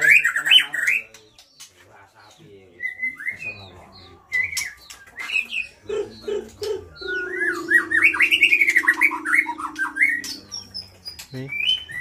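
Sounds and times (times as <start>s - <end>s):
songbird singing whistled phrases: 2.8s - 3.6s, 4.3s - 12.0s
low steady hum: 7.0s - 10.8s.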